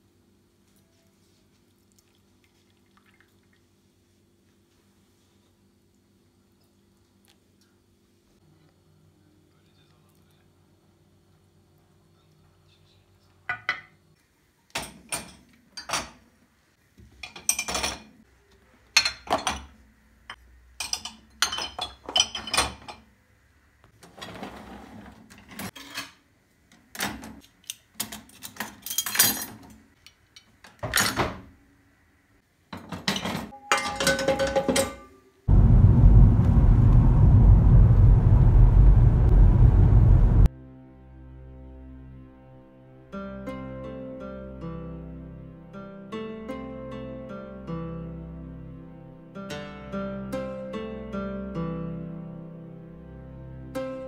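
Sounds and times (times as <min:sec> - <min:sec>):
dishes and cutlery clinking: 0:13.5 - 0:14.0, 0:14.8 - 0:16.2, 0:17.1 - 0:18.2, 0:18.9 - 0:19.7, 0:20.8 - 0:23.1, 0:27.0 - 0:31.2, 0:32.8 - 0:35.2
car cabin rumble: 0:35.5 - 0:40.5.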